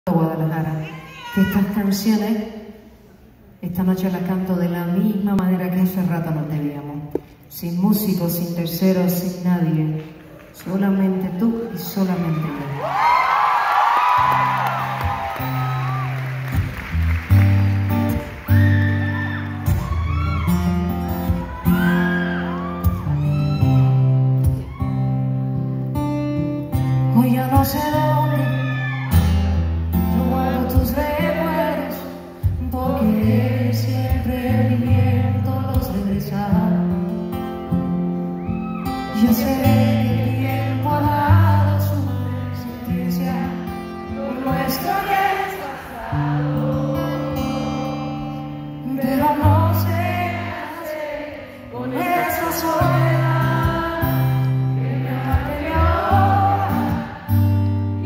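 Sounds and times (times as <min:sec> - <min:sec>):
acoustic guitar: 0:13.0 - 0:58.0
woman singing slow song: 0:27.1 - 0:29.1, 0:30.0 - 0:37.2, 0:39.0 - 0:57.0.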